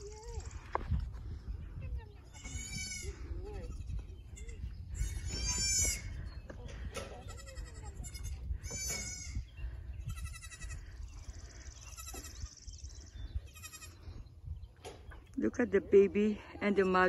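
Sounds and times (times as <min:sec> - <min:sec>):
goats bleating: 0:07.3 - 0:09.4, 0:10.1 - 0:10.9.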